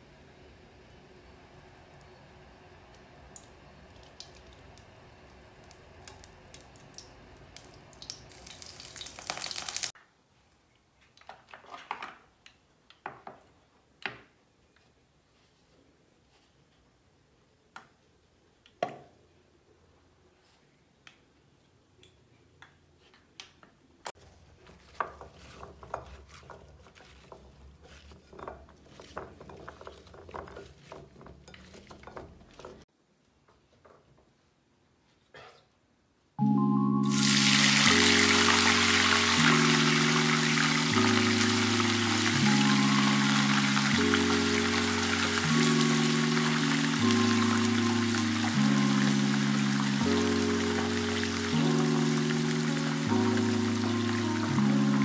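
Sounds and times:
oil pouring into frying pan: 8.0s - 9.9s.

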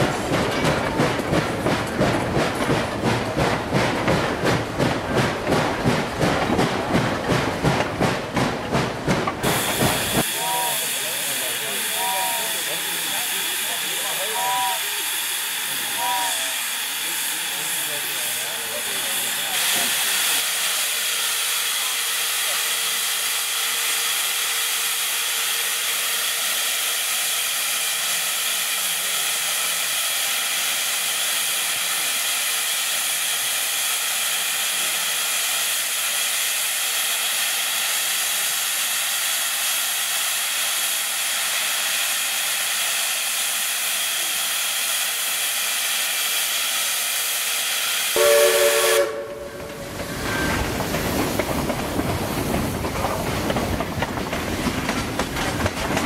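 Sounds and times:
steam hissing from safety valve: 9.4s - 49.1s.

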